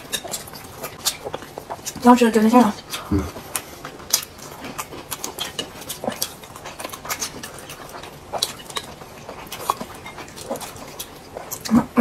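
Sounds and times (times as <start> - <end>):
chopsticks clicking against plates: 0.0 - 2.0
wet chewing and lip-smacking: 0.0 - 12.0.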